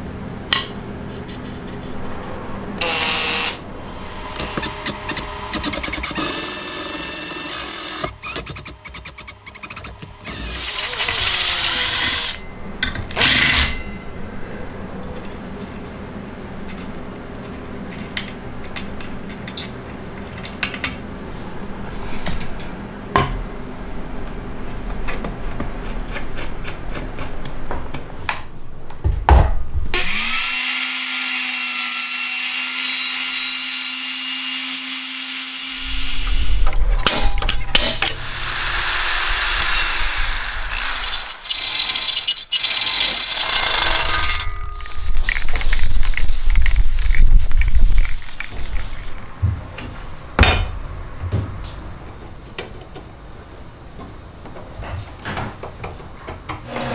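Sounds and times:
circular saw motor whining: 0:02.8 - 0:12.5, 0:33.6 - 0:49.2
clicks of screws and metal parts: 0:04.4 - 0:11.2
aerosol spray can hissing: 0:44.8 - 0:49.2.

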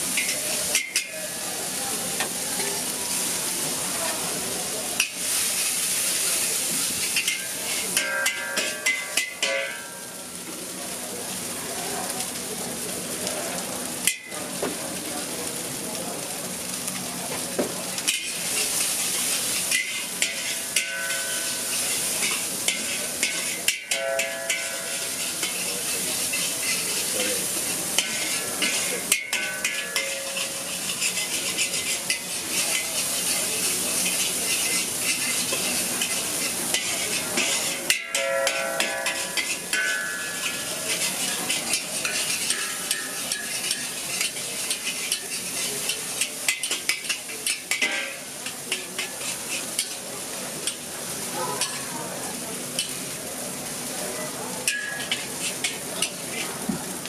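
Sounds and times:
metal spatula scraping wok: 0:00.0 - 0:01.5, 0:05.0 - 0:10.1, 0:18.0 - 0:50.9, 0:52.7 - 0:53.0, 0:54.6 - 0:56.7
rice sizzling in wok: 0:00.0 - 0:57.0.

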